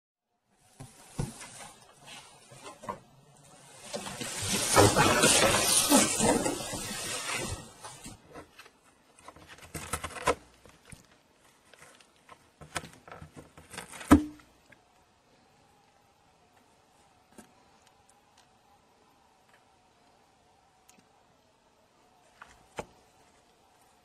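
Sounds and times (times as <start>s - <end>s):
cardboard crackles: 0.7s - 14.6s
cat tearing cardboard: 9.2s - 10.9s.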